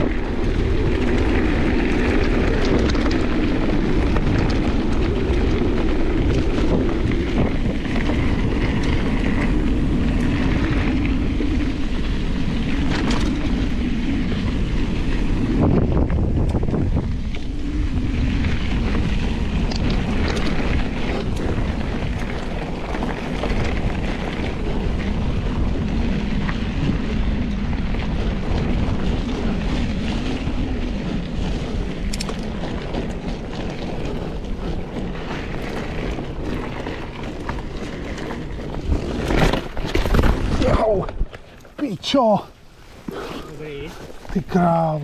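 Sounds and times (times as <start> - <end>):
tyres crunching over gravel: 0.0 - 16.9, 18.0 - 45.0
bike rattling: 0.0 - 45.0
wind buffeting microphone: 0.0 - 45.0.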